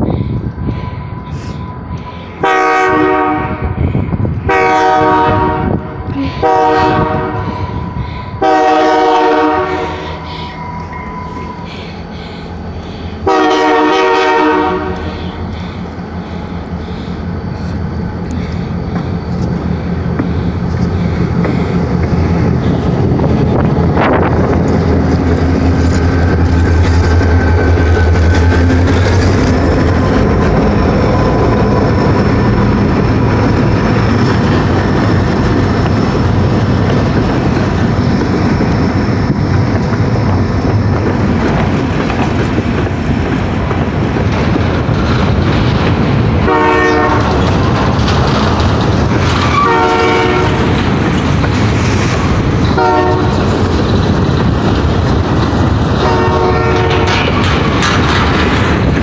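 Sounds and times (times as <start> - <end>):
diesel locomotive engines droning: 0.0 - 59.0
train horn blasts: 2.4 - 3.8, 4.5 - 10.2, 13.2 - 15.2, 46.4 - 47.4, 49.5 - 50.7, 52.8 - 53.4, 56.0 - 57.2.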